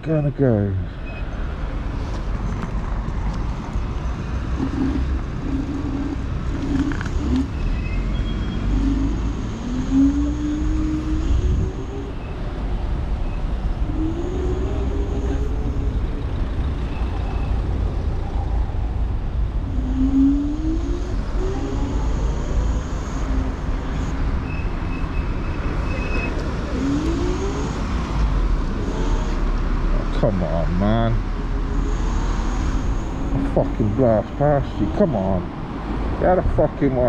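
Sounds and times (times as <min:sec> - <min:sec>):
wind rumbling on microphone: 0:01.8 - 0:30.1
electric scooter whine: 0:02.6 - 0:35.5.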